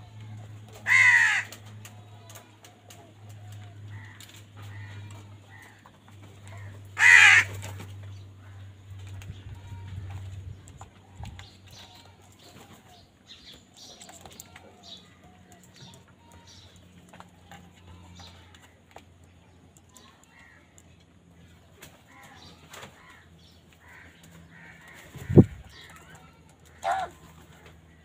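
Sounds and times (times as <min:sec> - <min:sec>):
wings flapping: 0:00.6 - 0:08.1
crow calls: 0:00.8 - 0:01.6, 0:03.9 - 0:07.8, 0:26.7 - 0:27.2.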